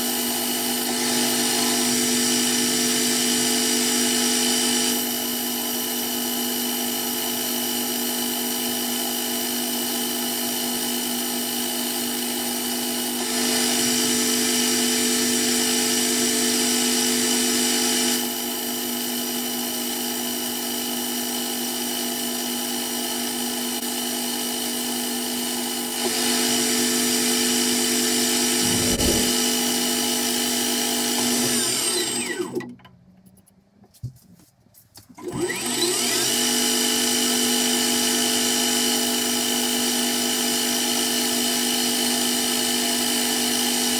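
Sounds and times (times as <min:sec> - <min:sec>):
metal lathe motor whining: 0:25.8 - 0:32.7.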